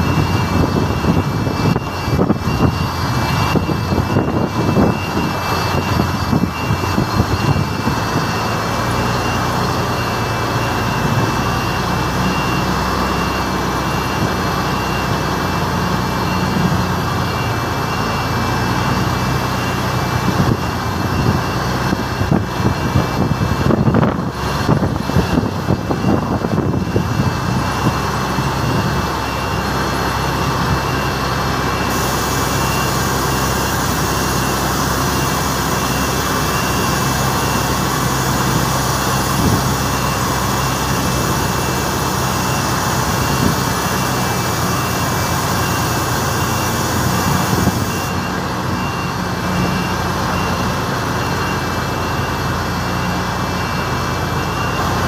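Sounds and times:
truck diesel engine running: 0:00.0 - 0:55.0
thin high whine: 0:31.8 - 0:48.4.

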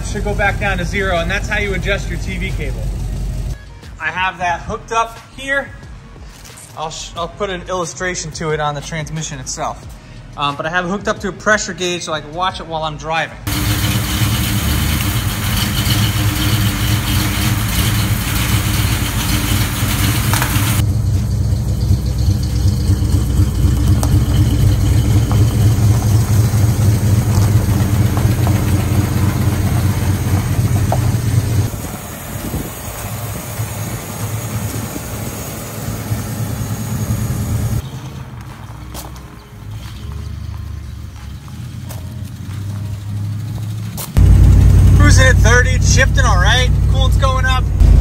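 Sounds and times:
car engine idling: 0:00.0 - 0:03.6, 0:13.5 - 0:37.8, 0:41.6 - 0:48.0.

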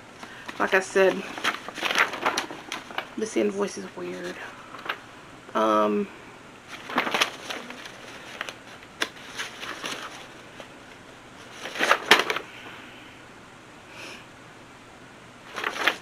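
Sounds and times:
paper sheets rustling: 0:00.2 - 0:05.1, 0:06.7 - 0:12.5, 0:15.5 - 0:16.0.

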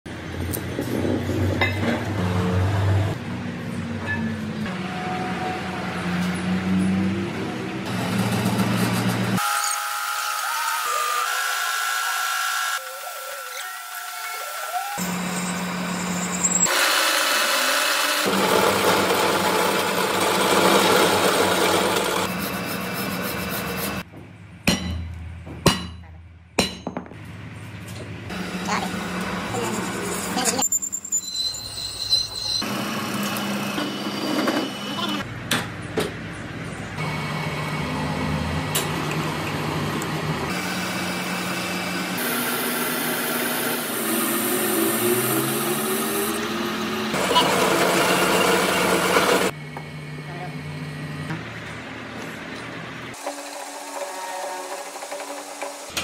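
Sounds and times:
lathe tool scraping metal: 0:15.0 - 0:24.0, 0:29.2 - 0:32.7
lathe motor hum: 0:16.7 - 0:24.0, 0:37.0 - 0:49.6
sharp metal clanks: 0:24.6 - 0:27.2.

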